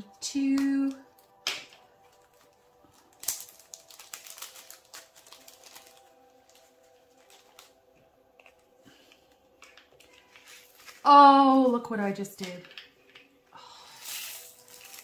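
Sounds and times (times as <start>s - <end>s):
small beads rattling into plastic container: 14.0s - 15.0s.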